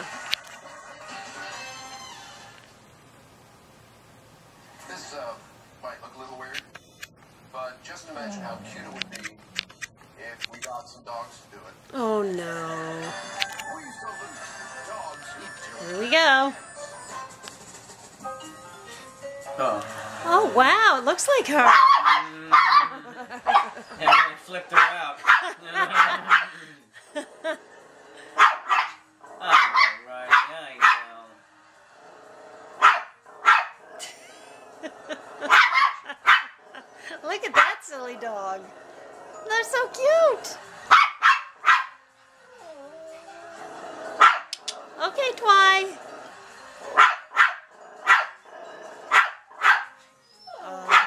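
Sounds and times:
faint television sound: 0:04.8 - 0:16.6, 0:19.6 - 0:27.0, 0:28.1 - 0:32.2, 0:49.7 - 0:51.0
small dog barking: 0:21.6 - 0:26.5, 0:28.4 - 0:31.2, 0:32.8 - 0:33.8, 0:35.5 - 0:36.6, 0:40.9 - 0:42.0, 0:44.2 - 0:44.6, 0:47.0 - 0:48.4, 0:49.1 - 0:50.0.

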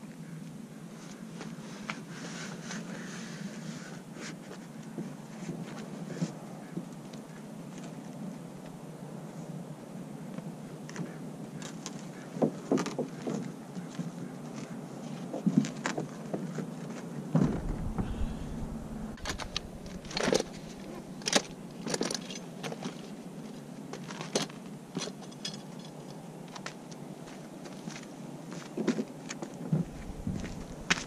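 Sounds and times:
heavy thump: 0:17.4 - 0:21.6, 0:29.8 - 0:31.0
kayak and cart knocking and rattling: 0:17.4 - 0:22.9, 0:29.8 - 0:31.0.

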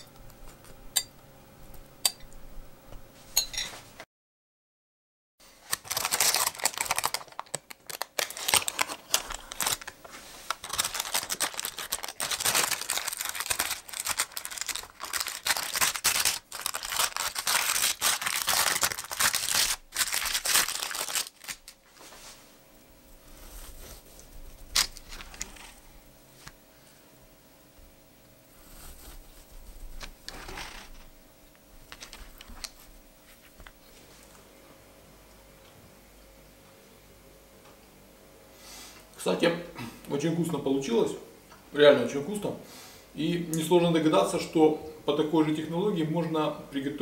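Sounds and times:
baking parchment crackling: 0:05.6 - 0:22.3, 0:23.2 - 0:26.6, 0:28.5 - 0:31.2.

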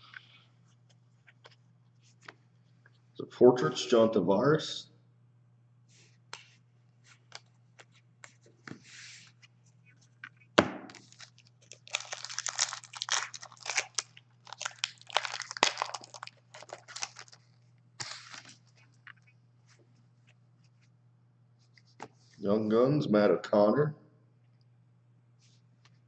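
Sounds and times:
foil wrappers crinkling: 0:10.9 - 0:18.6.

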